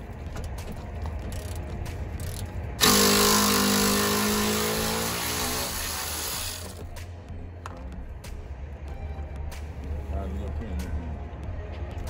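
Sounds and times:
motor running: 2.8s - 6.8s.

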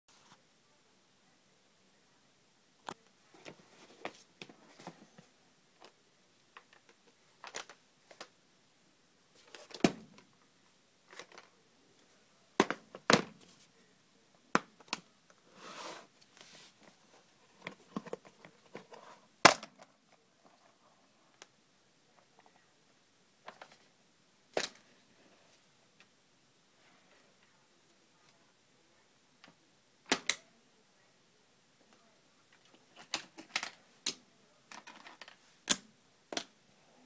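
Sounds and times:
plastic scrape: 15.5s - 16.8s.

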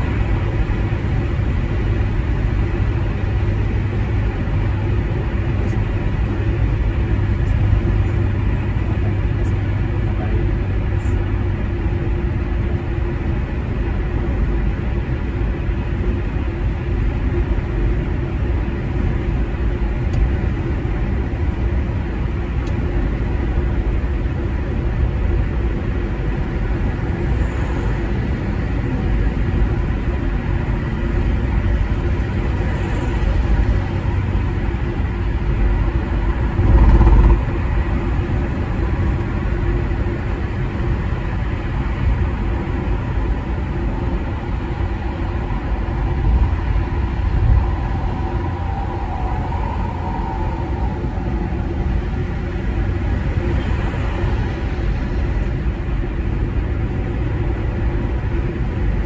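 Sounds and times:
car tyre and engine rumble: 0.0s - 59.0s
louder low rumble: 35.4s - 39.4s, 45.4s - 53.4s.

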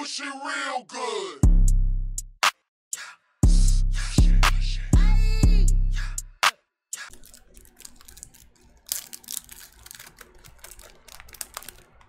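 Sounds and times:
shrink wrap crinkling: 7.1s - 12.0s.

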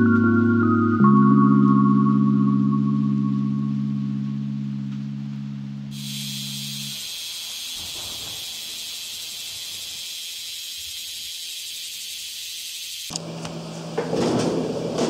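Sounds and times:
steady low hum: 3.8s - 15.0s
cicadas buzzing: 5.9s - 13.2s.

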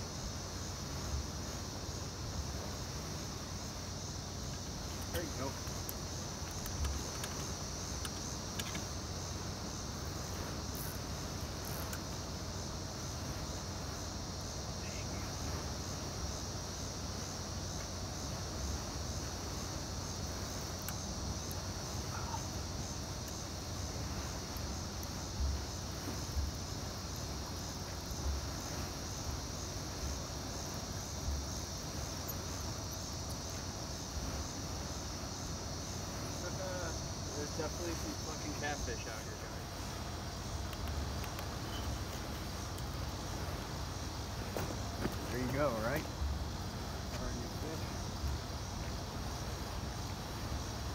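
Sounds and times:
crickets trilling: 0.0s - 50.9s.

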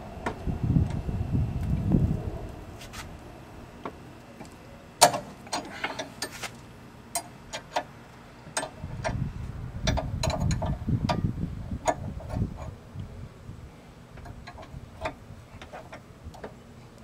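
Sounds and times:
low rumble: 0.0s - 4.2s.

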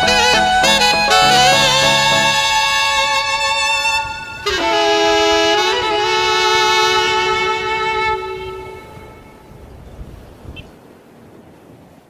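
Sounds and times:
background music with long held notes: 0.0s - 9.3s.

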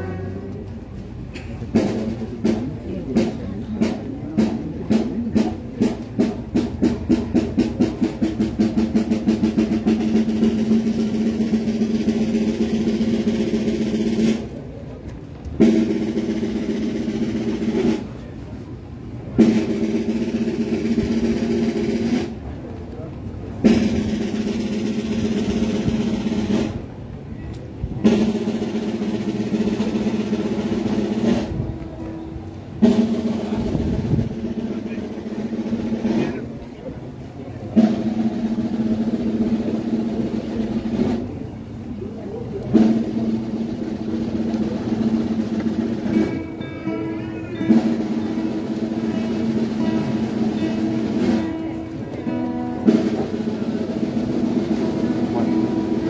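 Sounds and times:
procession drum rolls: 0.0s - 56.0s.

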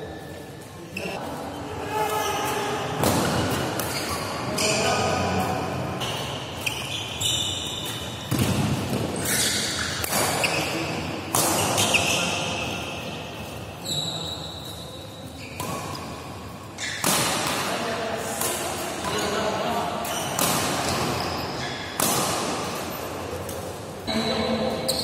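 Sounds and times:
court shoes squeaking: 0.0s - 17.6s, 18.4s - 25.0s
racket striking shuttlecock: 7.8s - 9.1s, 9.8s - 10.6s, 11.3s - 12.0s, 20.3s - 21.2s, 22.0s - 22.9s.

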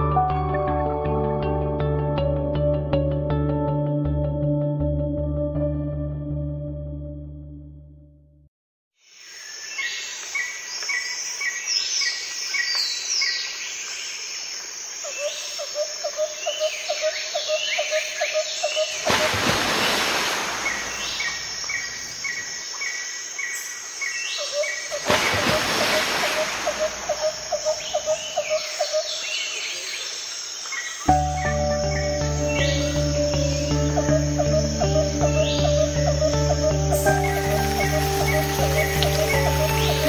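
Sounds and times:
birds chirping: 16.5s - 40.0s.

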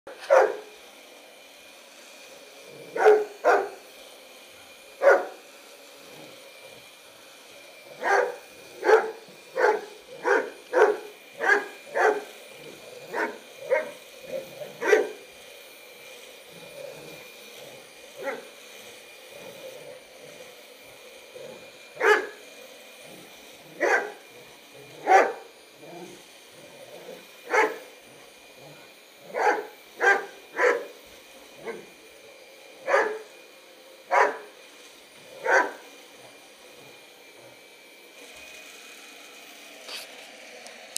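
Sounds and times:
dog barking: 0.2s - 0.7s, 3.0s - 3.8s, 5.0s - 5.4s, 8.0s - 12.3s, 13.1s - 14.0s, 14.8s - 15.2s, 18.2s - 18.4s, 22.0s - 22.4s, 23.8s - 24.2s, 25.0s - 25.4s, 27.5s - 27.8s, 29.3s - 30.9s, 31.6s - 31.9s, 32.8s - 33.3s, 34.1s - 34.5s, 35.4s - 35.8s.

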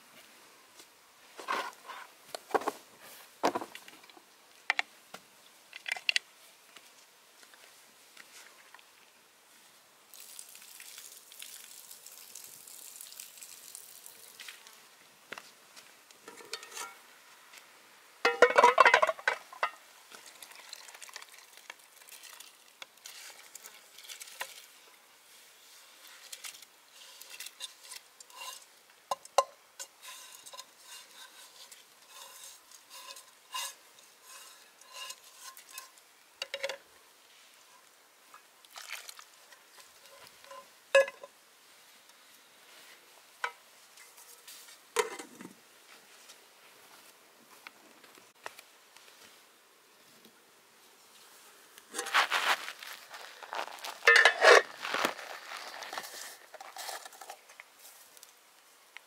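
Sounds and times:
faint hiss: 0.0s - 59.0s
frying pan scraping a pot rim: 26.9s - 36.0s, 51.9s - 57.4s.

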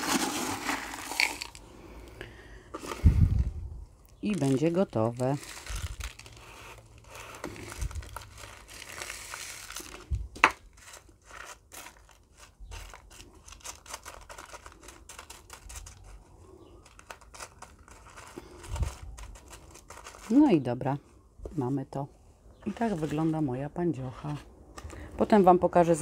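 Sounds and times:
granules pouring and rattling: 0.0s - 1.6s, 4.3s - 10.1s.

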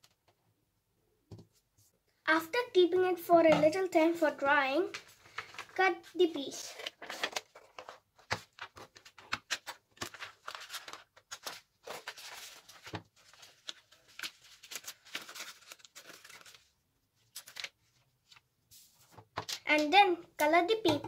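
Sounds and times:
paper rustling: 4.9s - 19.9s.

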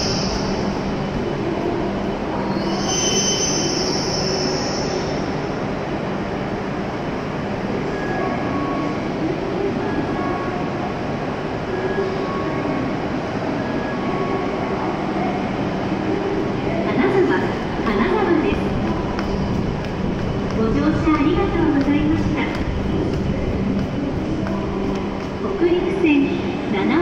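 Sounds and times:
train hum and fan noise: 0.0s - 27.0s
train pulling in: 0.0s - 27.0s
high brake squeal: 2.4s - 5.2s.

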